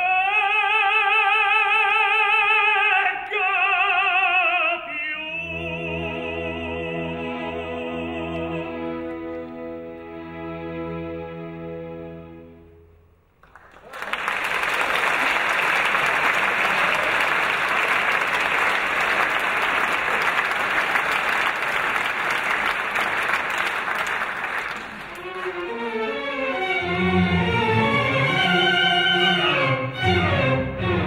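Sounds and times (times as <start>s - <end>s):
orchestra playing: 5.2s - 13.1s, 24.8s - 31.0s
audience applause: 13.4s - 26.0s.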